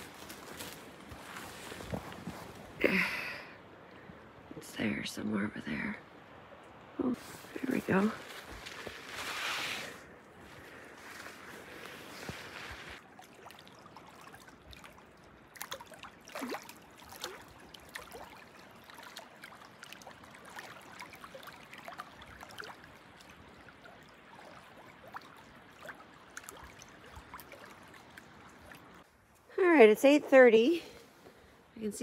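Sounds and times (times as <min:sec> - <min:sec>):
small waves lapping at shore: 0:03.7 - 0:29.1
small water splashes and clicks: 0:13.0 - 0:29.5.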